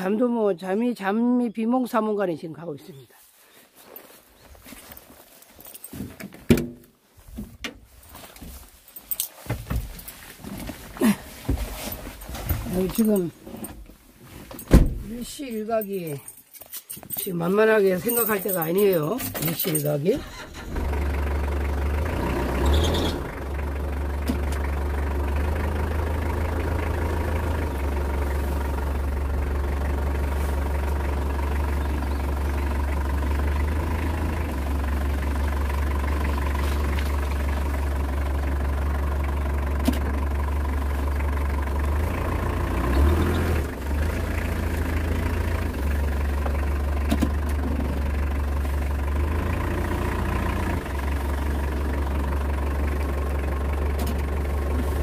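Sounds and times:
engine idling: 0:18.0 - 0:55.0.

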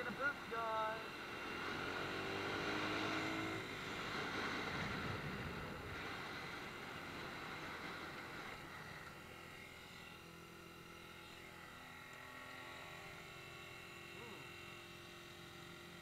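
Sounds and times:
dirt bike engine running: 0:00.0 - 0:16.0.

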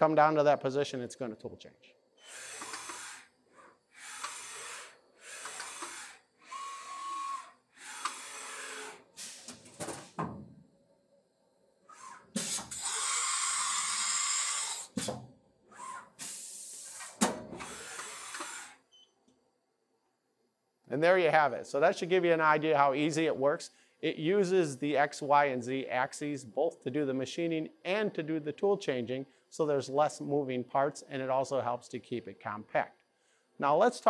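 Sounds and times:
cnc mill axis moves: 0:02.2 - 0:09.0
short motor whine: 0:02.2 - 0:09.5
loud air hiss: 0:03.9 - 0:10.1, 0:11.9 - 0:18.8.

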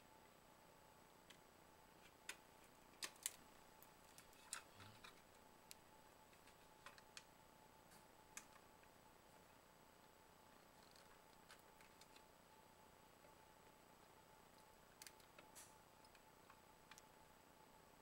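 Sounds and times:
faint steady tone: 0:00.0 - 0:18.0.

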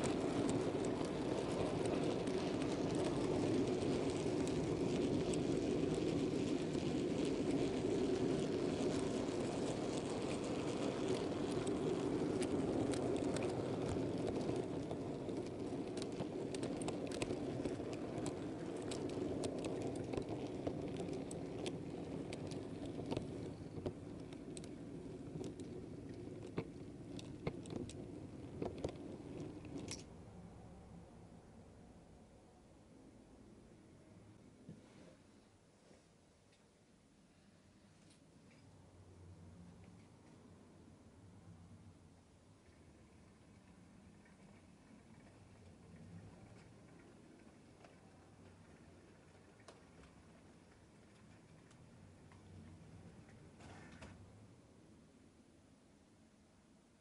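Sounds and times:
wheels ticking over rail joints: 0:00.0 - 0:30.1, 0:42.6 - 0:54.3
model train wheels rumbling: 0:00.0 - 0:31.2, 0:42.3 - 0:54.6.

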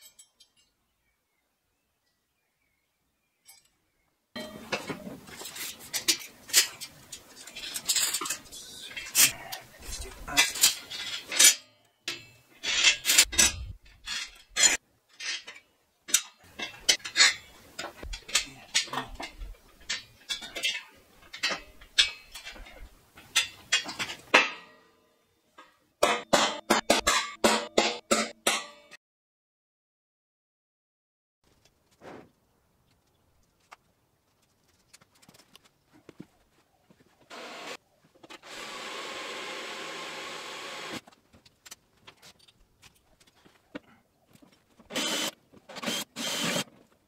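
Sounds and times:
steel tools clinking: 0:00.0 - 0:00.8, 0:04.4 - 0:24.9.

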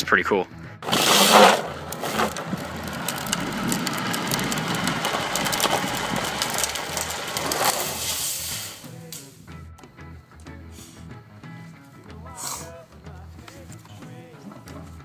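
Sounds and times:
trike wheels scraping on asphalt: 0:00.8 - 0:08.9.

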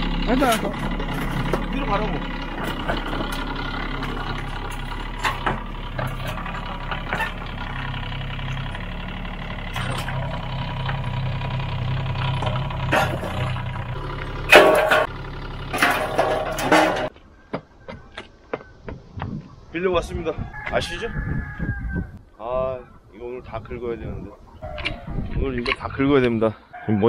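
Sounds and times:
diesel engine running: 0:00.0 - 0:17.1
metallic clattering of ramps: 0:00.0 - 0:17.1.

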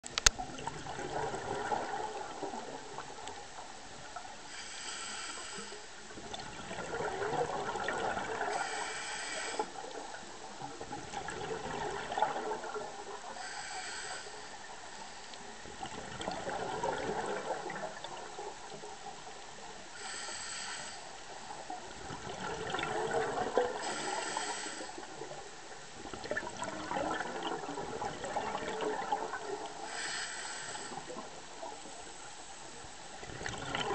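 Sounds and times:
exhale bubbles rushing: 0:00.4 - 0:03.1, 0:06.2 - 0:08.9, 0:10.8 - 0:13.2, 0:15.8 - 0:18.4, 0:22.0 - 0:25.4, 0:26.1 - 0:29.9, 0:33.2 - 0:33.9
regulator hissing inhale: 0:04.4 - 0:06.0, 0:08.5 - 0:09.8, 0:13.3 - 0:15.5, 0:19.9 - 0:21.2, 0:23.8 - 0:25.1, 0:29.8 - 0:31.2.

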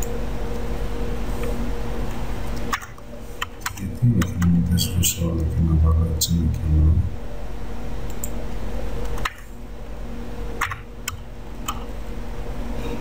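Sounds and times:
low electrical hum: 0:00.0 - 0:13.0
keyboard and mouse clicks: 0:02.5 - 0:04.6, 0:08.1 - 0:08.4, 0:09.0 - 0:09.5, 0:10.6 - 0:11.9.

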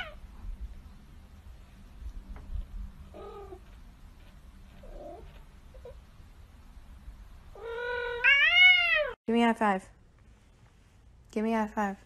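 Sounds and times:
cat yowling: 0:07.6 - 0:09.2.

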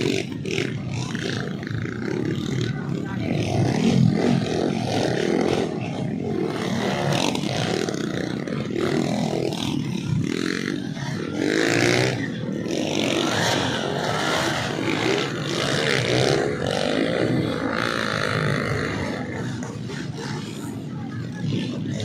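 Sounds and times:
dirt bike engines revving: 0:00.0 - 0:22.0.

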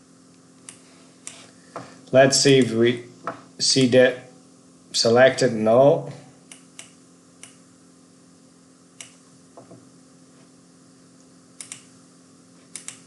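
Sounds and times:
faint steady hum: 0:00.0 - 0:13.0
computer mouse clicks: 0:06.5 - 0:07.6, 0:09.0 - 0:09.2, 0:11.6 - 0:11.9, 0:12.7 - 0:13.0.

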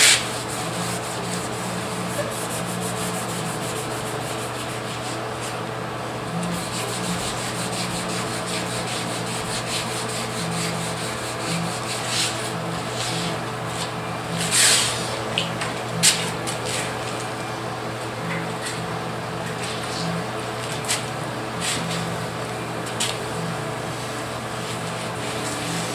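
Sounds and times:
sandpaper rubbing on paint: 0:00.0 - 0:05.6, 0:06.4 - 0:15.1.

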